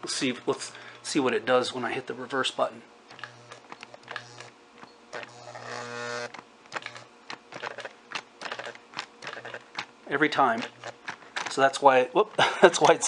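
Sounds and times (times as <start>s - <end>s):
motor whine: 3.1s - 11.5s
toy train motor humming: 3.1s - 13.0s
clicks and gear chatter: 6.3s - 13.0s.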